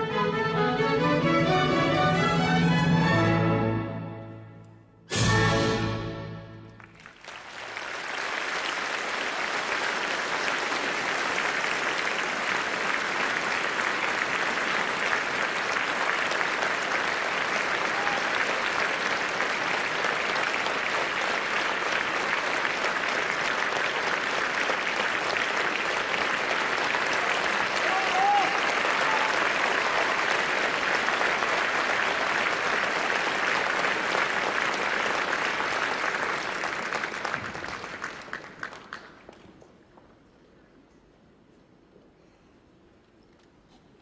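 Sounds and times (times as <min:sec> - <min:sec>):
orchestral music: 0:00.0 - 0:07.0
audience applauding: 0:06.6 - 0:39.8.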